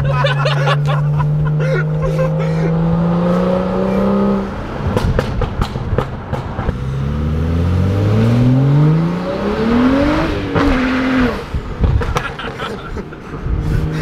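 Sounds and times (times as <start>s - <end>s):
car engine revving: 0.0s - 14.0s
exhaust pops and crackles: 4.9s - 6.8s, 11.8s - 12.8s.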